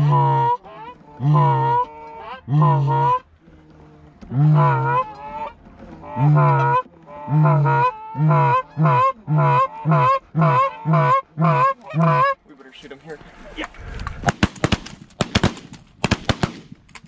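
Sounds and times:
goose call honks: 0.0s - 3.3s, 4.3s - 12.5s.

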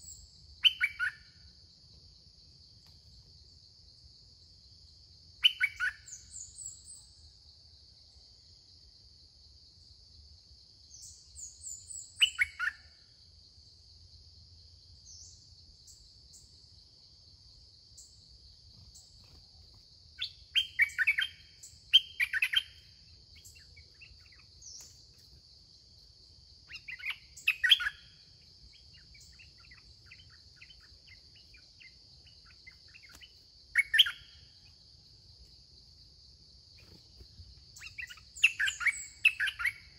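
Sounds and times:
thin high bird chirps: 0.0s - 1.3s, 5.4s - 7.0s, 11.0s - 12.8s, 18.8s - 25.4s, 26.7s - 34.6s, 36.8s - 39.9s
insect drone: 0.0s - 39.9s
bulbuls singing: 20.2s - 22.8s, 26.7s - 34.4s, 37.8s - 39.9s.

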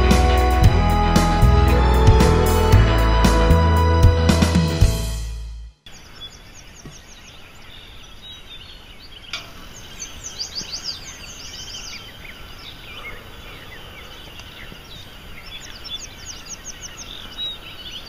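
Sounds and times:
wild birds singing: 5.8s - 18.0s
steady outdoor hiss: 5.9s - 18.0s.

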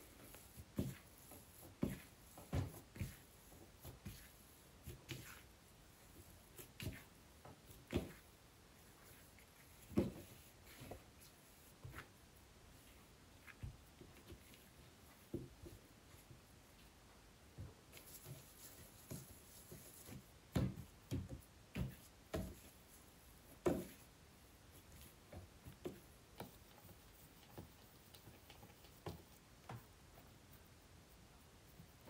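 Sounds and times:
hands patting dough: 0.0s - 32.0s
dough thudding on a table: 20.5s - 22.7s.

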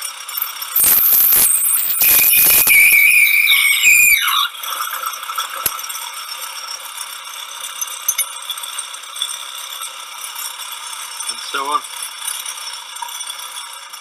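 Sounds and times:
lathe high steady tone: 0.0s - 7.9s.

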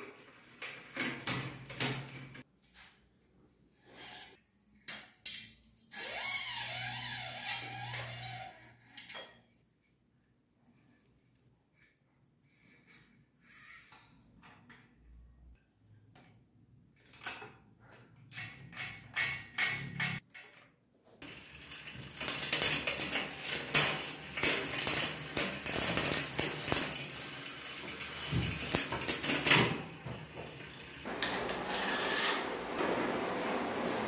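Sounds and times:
bicycle chain rattling through gears: 21.2s - 31.1s.

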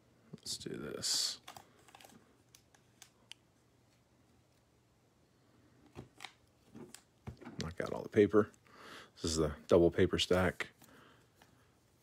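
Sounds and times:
cards clicking and rustling: 1.2s - 4.0s, 5.8s - 7.8s.

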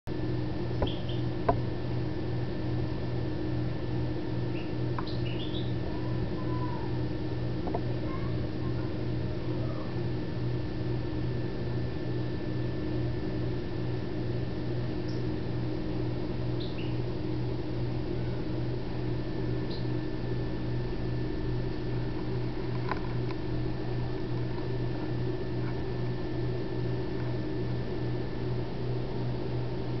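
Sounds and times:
low electrical hum: 0.1s - 30.0s
faint high chirps: 0.8s - 1.3s, 4.5s - 5.8s, 16.6s - 17.0s.

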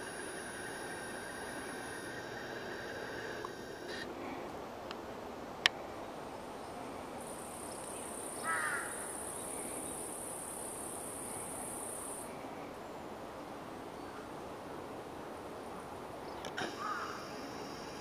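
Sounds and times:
high insect buzz: 0.0s - 4.1s
outdoor background noise: 0.0s - 18.0s.

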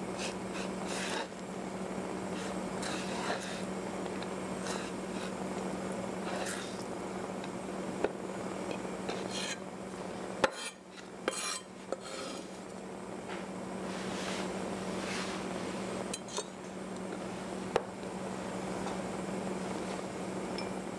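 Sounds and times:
knife scraping on wooden board: 0.2s - 1.3s, 2.3s - 3.7s, 4.6s - 5.4s, 6.2s - 6.8s, 9.1s - 9.6s, 10.4s - 12.6s
knife and metal cup clinking: 10.4s - 12.4s, 16.1s - 16.6s.

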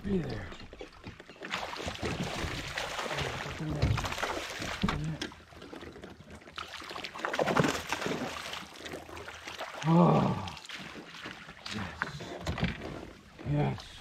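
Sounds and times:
fish splashing in water: 1.4s - 5.0s, 5.7s - 12.2s.

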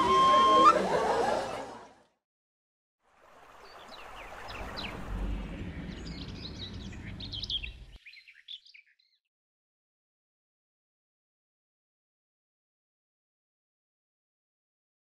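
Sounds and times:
outdoor background noise: 3.1s - 8.3s
small birds chirping: 3.7s - 9.2s.

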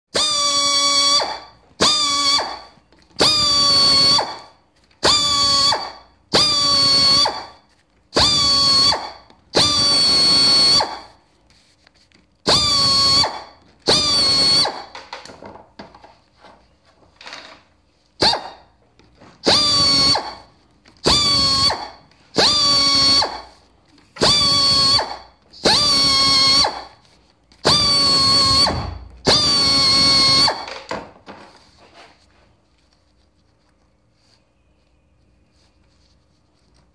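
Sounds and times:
die grinder whining: 27.7s - 30.8s.

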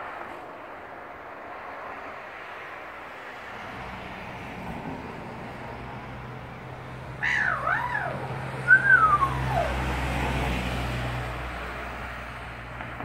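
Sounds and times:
vehicle engine hum: 0.0s - 13.0s
magpie calling: 7.2s - 9.8s
whistled note sliding down: 8.7s - 9.8s.

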